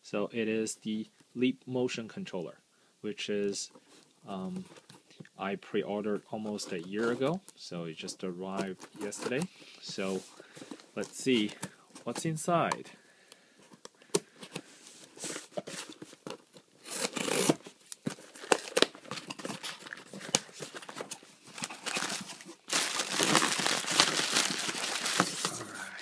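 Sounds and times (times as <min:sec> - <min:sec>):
plastic packing crinkling: 0:15.2 - 0:25.8
scissors cutting tape and cardboard: 0:16.8 - 0:17.6.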